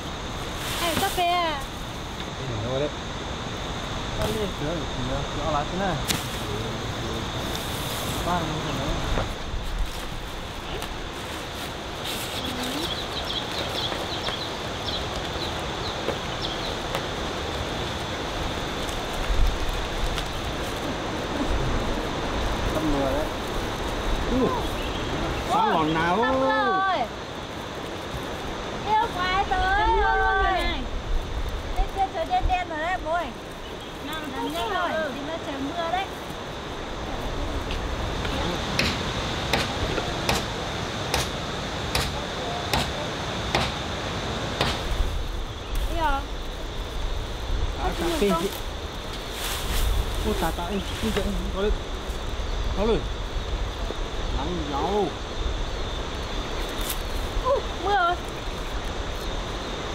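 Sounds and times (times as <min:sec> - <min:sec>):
steady hiss: 0:00.0 - 0:59.9
small bird chirping: 0:12.3 - 0:17.0, 0:24.2 - 0:26.2
hand tool striking wood: 0:38.8 - 0:39.7, 0:40.3 - 0:40.5, 0:41.1 - 0:41.3, 0:41.9 - 0:42.9, 0:43.5 - 0:43.8.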